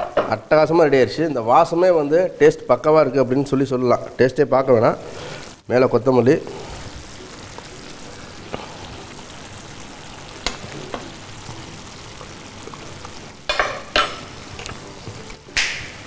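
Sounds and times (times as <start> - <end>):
curry sizzling in a pan: 3.7 - 16.0.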